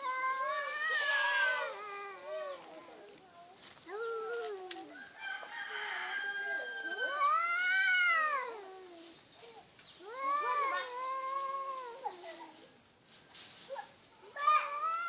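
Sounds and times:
cats yowling: 0.0 - 2.7.

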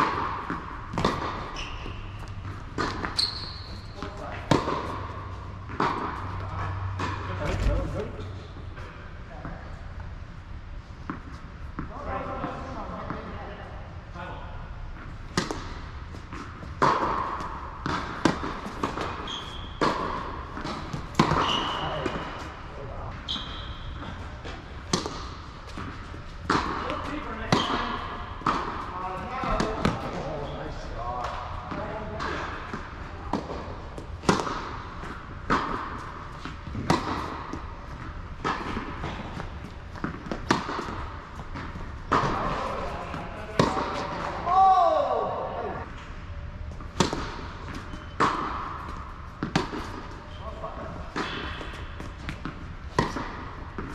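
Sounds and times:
racket hitting tennis ball: 0.0 - 8.4, 15.1 - 22.6, 23.4 - 30.4, 31.2 - 44.6, 46.7 - 53.9
tennis ball bouncing: 0.0 - 8.6, 15.0 - 22.6, 23.4 - 30.4, 31.2 - 44.5, 46.7 - 53.9
shoe squeak on court: 1.4 - 2.4, 3.0 - 4.1, 19.2 - 19.8, 21.3 - 22.4, 23.2 - 24.2, 47.7 - 48.2.

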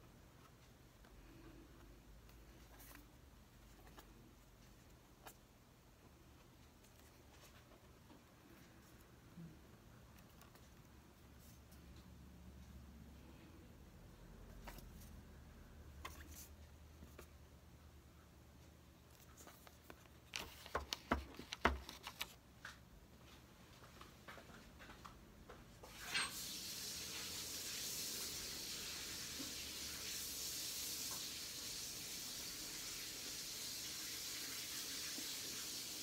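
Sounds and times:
steady hiss: 25.9 - 36.0.

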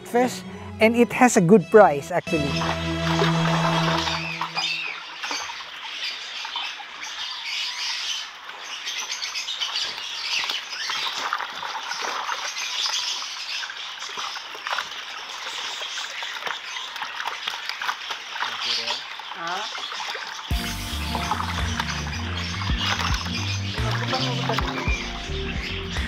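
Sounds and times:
water splashing: 2.3 - 26.0
fish thrashing: 21.2 - 25.0.

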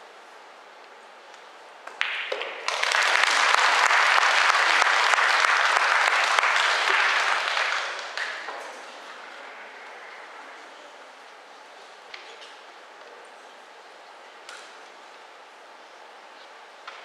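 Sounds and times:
audience applauding: 2.5 - 10.4.

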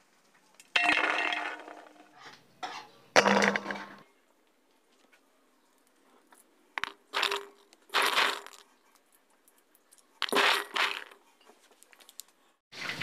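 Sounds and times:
peas rattling against metal bowl: 6.8 - 8.8, 9.8 - 11.2.

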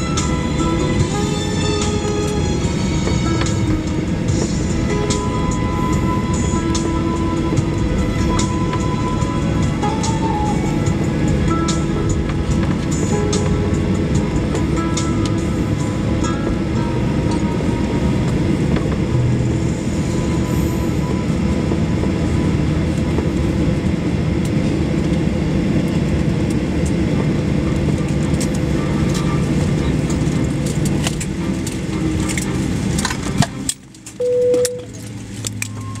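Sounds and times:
airplane cabin engine rumble: 0.0 - 36.0
short single tone: 34.2 - 35.0.

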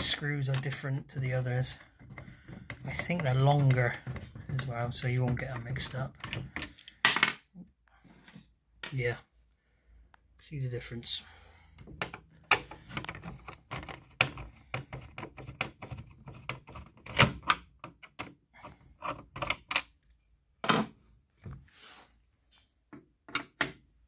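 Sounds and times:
plastic parts being handled: 0.0 - 7.1, 11.8 - 20.2.

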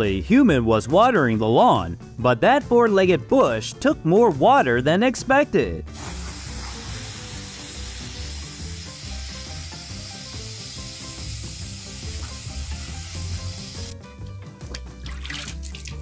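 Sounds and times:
background music: 0.0 - 16.0
garden hose spraying water: 5.9 - 14.0.

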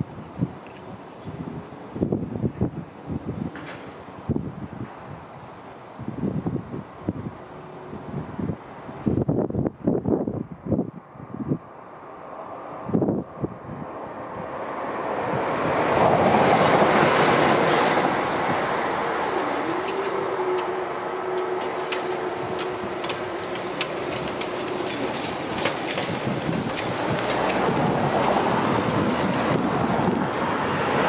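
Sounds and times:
wind buffeting microphone: 0.0 - 31.0
crossing barrier hum: 10.7 - 31.0.

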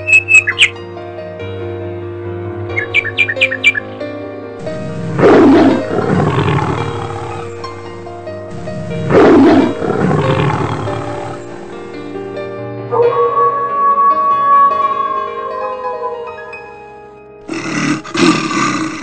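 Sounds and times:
background music: 0.0 - 19.0
tiger roaring: 4.6 - 7.8, 8.5 - 11.8, 17.4 - 19.0.

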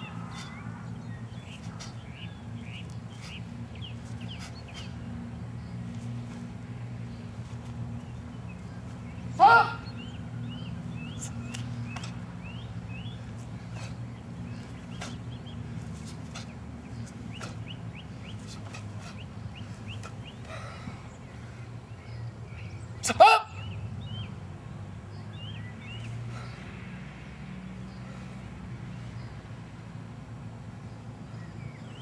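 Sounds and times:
steady low hum: 0.0 - 22.9
small birds chirping: 0.0 - 24.4, 25.1 - 26.6
karate shouts: 9.4 - 9.9, 23.0 - 23.6.

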